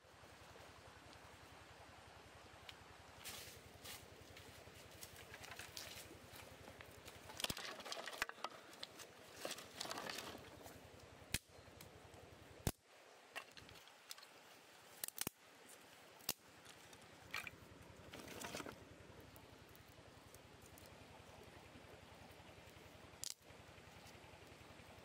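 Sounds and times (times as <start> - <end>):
dry sticks rustling: 3.2 - 12.0, 12.6 - 21.6, 22.2 - 24.6
sharp wooden clicks: 22.7 - 23.5.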